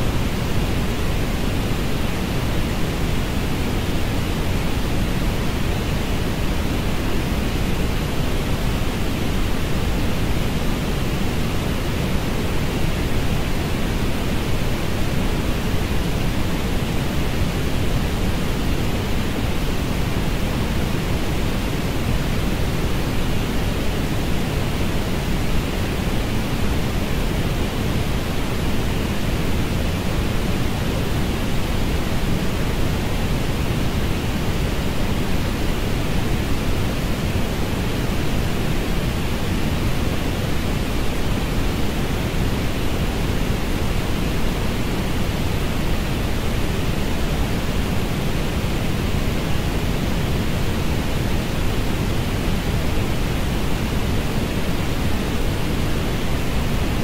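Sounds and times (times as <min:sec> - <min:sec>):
steady noise hiss: 0:00.0 - 0:57.0.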